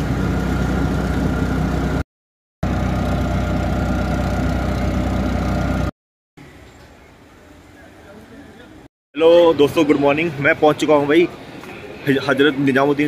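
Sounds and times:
auto-rickshaw engine running: 0.0s - 2.0s, 2.6s - 5.9s.

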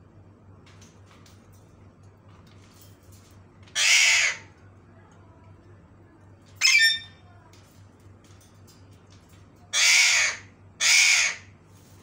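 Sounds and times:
parakeet screeching: 3.7s - 4.5s, 6.6s - 7.2s, 9.7s - 11.5s.

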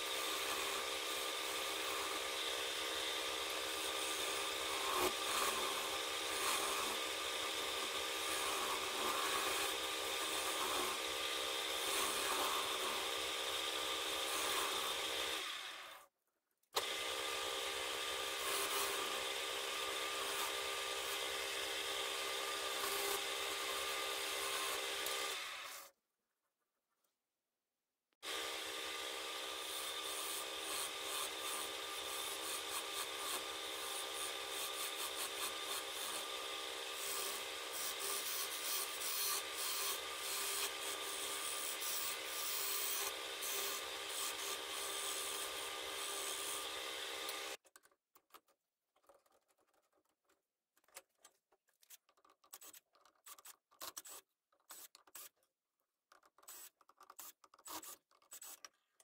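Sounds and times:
lathe motor hum: 28.2s - 47.6s.

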